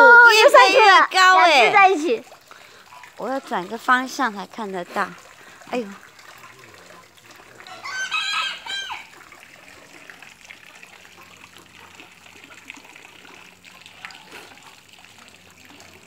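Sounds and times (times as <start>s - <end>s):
water trickling into pond: 0.0s - 16.0s
rooster crowing: 7.6s - 9.1s.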